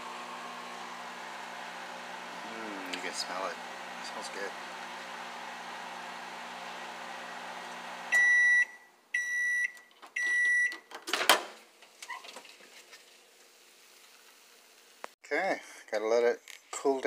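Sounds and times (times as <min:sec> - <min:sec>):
microwave oven humming: 0:00.0 - 0:08.4
microwave beeps: 0:08.1 - 0:10.9.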